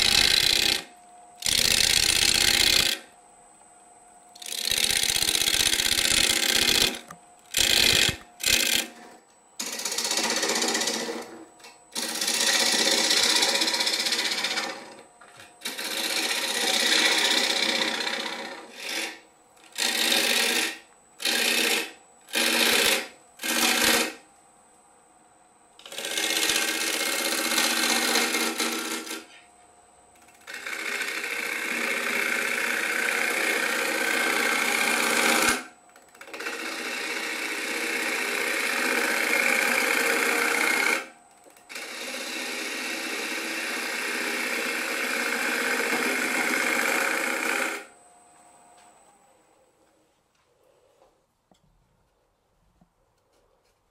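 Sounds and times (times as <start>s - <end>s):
gouge cutting wood on lathe: 0.0s - 3.1s, 4.4s - 9.0s, 9.6s - 11.4s, 12.0s - 15.0s, 15.6s - 24.2s, 25.8s - 29.2s, 30.5s - 41.1s, 41.7s - 47.9s
faint high whine: 0.0s - 16.8s, 47.1s - 53.9s.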